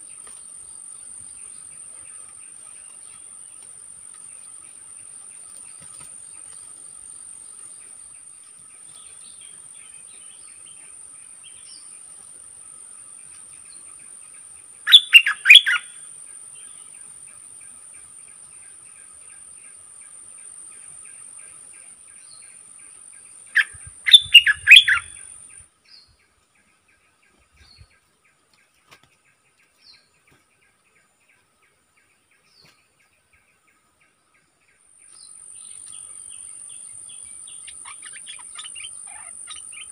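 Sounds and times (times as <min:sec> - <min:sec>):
bulbul chirping calls: 0:14.9 - 0:15.9, 0:23.5 - 0:25.4, 0:36.7 - 0:39.9.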